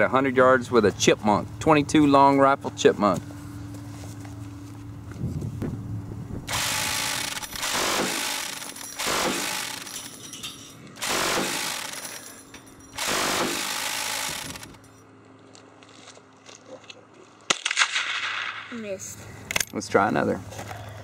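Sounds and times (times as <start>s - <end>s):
minigun firing bursts: 6.4s - 10.2s, 11.0s - 12.3s, 12.9s - 14.9s.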